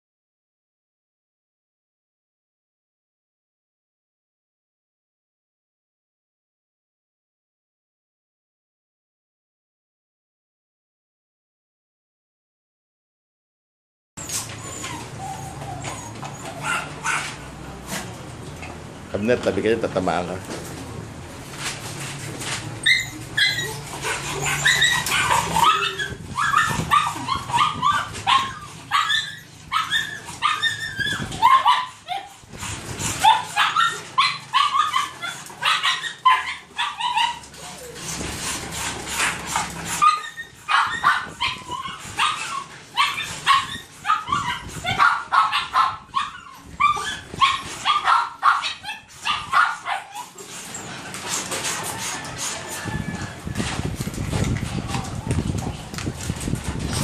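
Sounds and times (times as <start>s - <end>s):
dogs yipping and barking: 14.2s - 18.1s, 21.9s - 54.4s.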